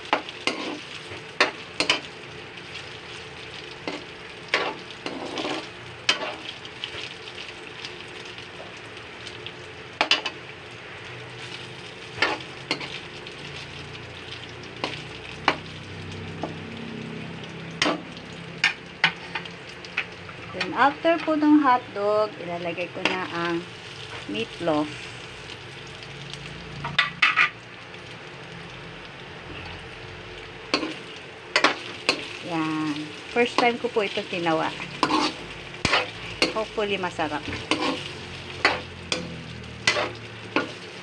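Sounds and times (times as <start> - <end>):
meat sizzling in a wok: 0.0 - 41.0
metal ladle scraping pan: 0.1 - 2.1, 3.8 - 6.4, 34.7 - 36.8, 37.4 - 40.9.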